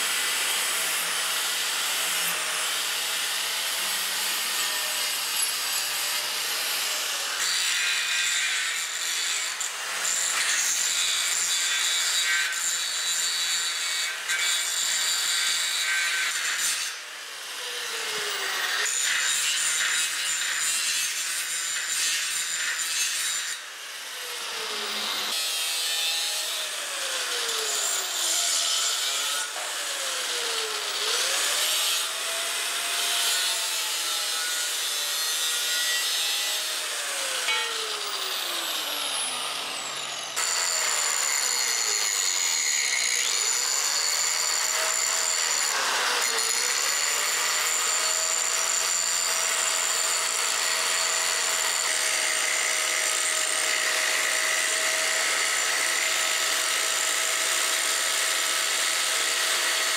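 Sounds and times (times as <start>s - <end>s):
angle grinder grinding steel: 17.8s - 59.9s.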